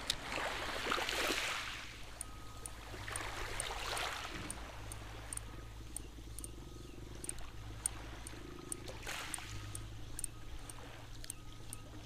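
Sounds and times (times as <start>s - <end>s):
shallow water washing and trickling: 0.0s - 2.0s
low buzz: 1.8s - 12.0s
faint ticks: 2.0s - 12.0s.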